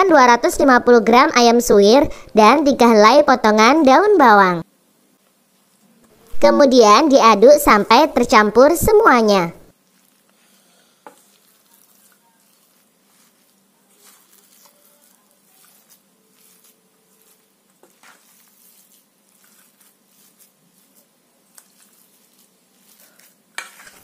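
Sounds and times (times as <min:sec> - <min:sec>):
spoon stirring food in bowl: 0:11.0 - 0:24.0.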